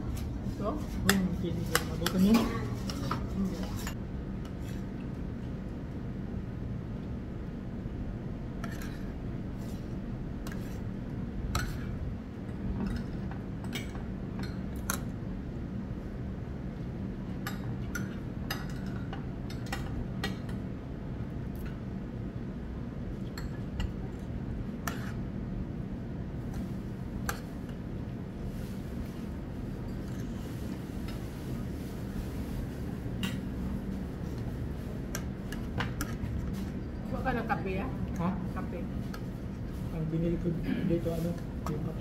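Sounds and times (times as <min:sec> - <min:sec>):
low background hum: 0:00.0 - 0:42.0.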